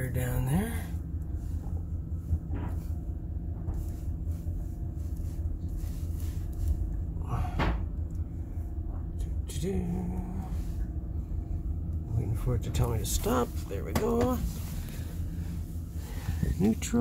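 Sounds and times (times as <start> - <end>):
van engine idling: 0.0 - 17.0.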